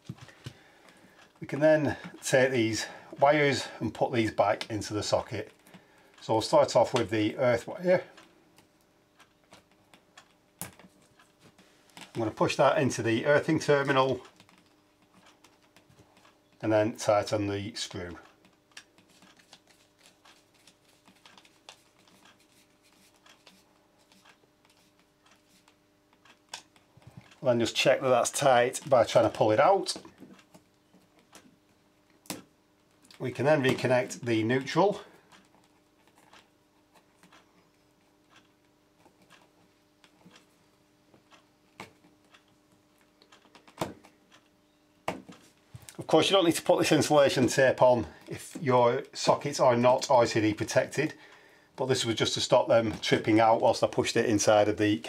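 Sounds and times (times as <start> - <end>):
faint steady hum: 0.0 - 55.0
cable clicks and rustles: 13.2 - 16.6, 17.9 - 40.5, 41.1 - 44.5.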